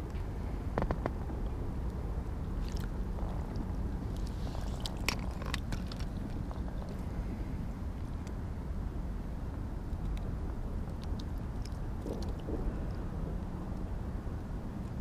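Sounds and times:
wind rumble on microphone: 0:00.0 - 0:15.0
wet splashes and squelches: 0:02.6 - 0:07.0.

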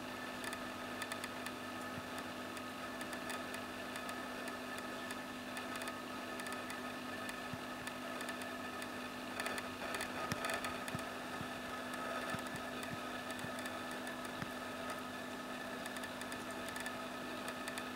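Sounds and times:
low mechanical hum with hiss: 0:00.0 - 0:17.9
faint ticks: 0:00.4 - 0:15.0, 0:15.8 - 0:17.9.

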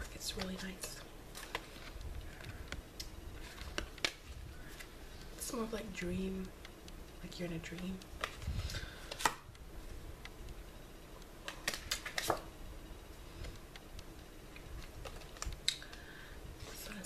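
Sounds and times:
cards clicking and snapping: 0:00.4 - 0:04.9, 0:09.0 - 0:09.5, 0:11.4 - 0:12.5.

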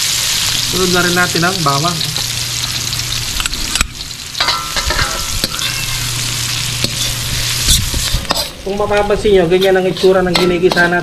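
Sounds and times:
onion sizzling in oil: 0:00.0 - 0:11.0.

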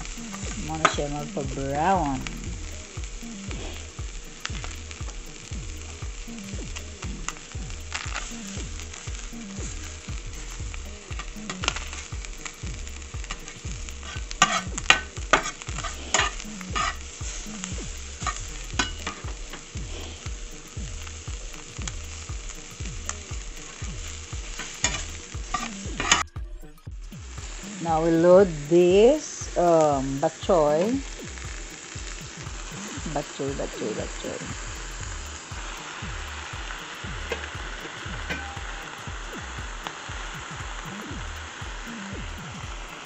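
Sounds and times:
vegetables sizzling in a frying pan: 0:00.0 - 0:43.0
utensil scraping pan: 0:13.3 - 0:17.6, 0:24.0 - 0:26.2.

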